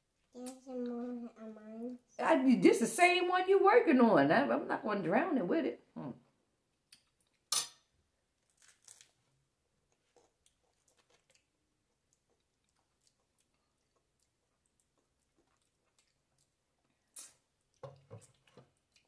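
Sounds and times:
crunchy bite into taco: 8.4s - 9.2s
crunchy chewing: 9.8s - 19.0s.

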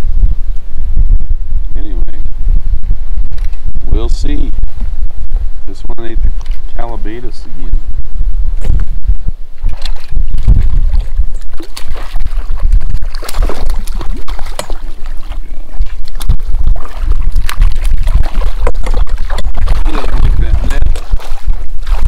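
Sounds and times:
wind buffeting microphone: 0.0s - 22.0s
fish splashing at water surface: 9.7s - 22.0s.

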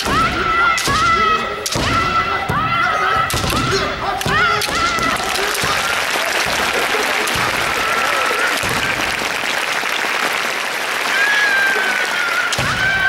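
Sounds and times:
long high held shout: 0.0s - 9.1s, 11.0s - 13.0s
crowd applauding: 4.6s - 13.0s.

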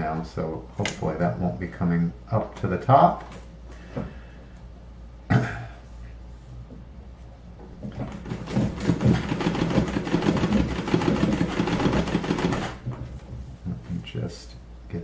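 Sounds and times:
treadle sewing machine stitching: 8.3s - 12.8s.

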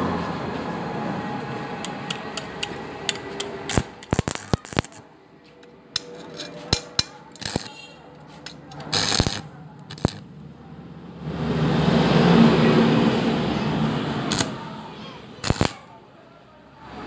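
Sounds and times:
metal tube scraping on concrete: 6.0s - 10.2s.

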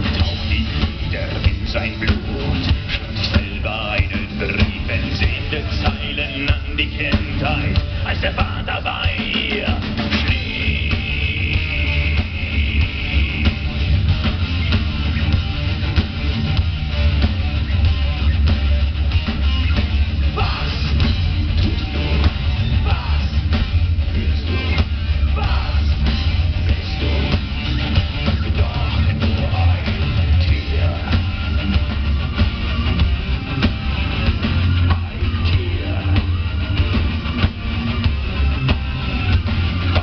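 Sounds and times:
man singing: 0.0s - 13.8s, 20.3s - 27.5s, 28.3s - 31.5s, 34.9s - 36.8s
booming bass: 0.0s - 40.0s
distorted electric guitars: 0.0s - 40.0s
drum kit pounding: 0.0s - 40.0s
heavy metal band playing: 0.0s - 40.0s.

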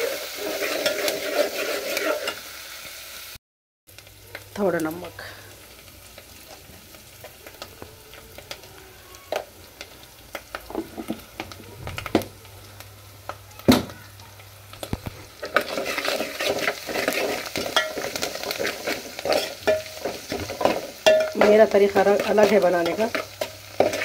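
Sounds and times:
metal spoon scraping pot: 0.0s - 2.4s, 15.4s - 24.0s
oil sizzling: 0.0s - 24.0s.

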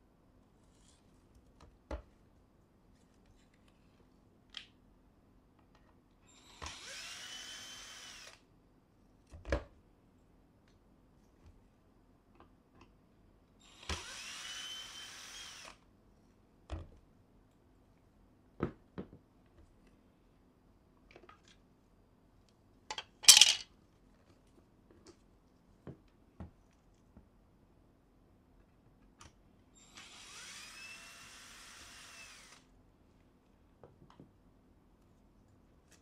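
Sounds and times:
electric screwdriver whining: 13.7s - 15.8s, 29.8s - 32.6s.

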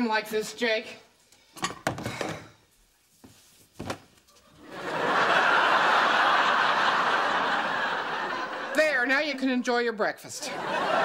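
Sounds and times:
audience laughter: 4.6s - 9.4s, 10.4s - 11.0s.

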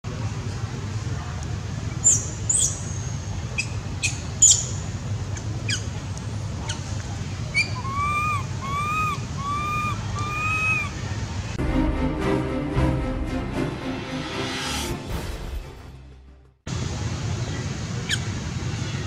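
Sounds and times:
baby monkey squeaks: 2.0s - 4.8s, 7.5s - 10.9s
baby monkey pitched cries: 7.5s - 11.0s.

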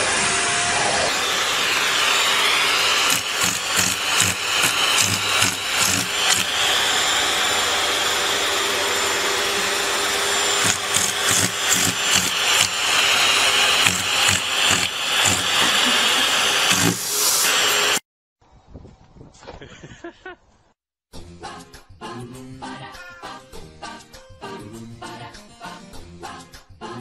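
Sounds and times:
vacuum cleaner running: 0.0s - 18.0s.

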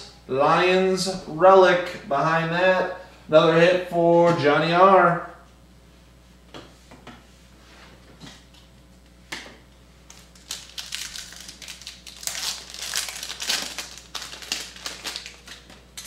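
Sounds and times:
foil wrapper crackling: 10.1s - 16.0s.

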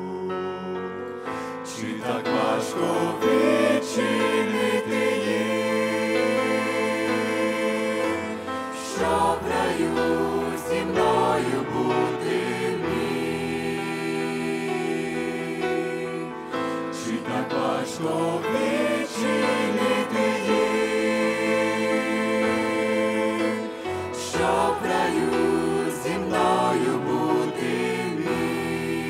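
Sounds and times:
male vocal trio singing gospel: 0.0s - 29.0s.

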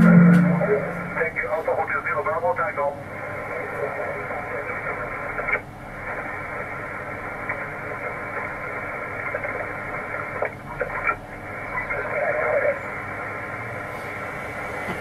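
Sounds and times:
garbled radio signal: 0.0s - 2.3s, 7.5s - 12.9s
radio static hiss: 0.0s - 13.6s
radio crackles: 3.6s - 12.8s.

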